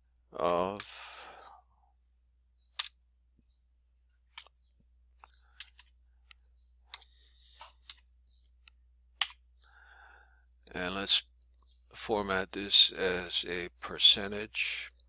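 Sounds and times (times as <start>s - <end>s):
mouse clicks: 2.6s - 3.0s, 4.3s - 9.5s.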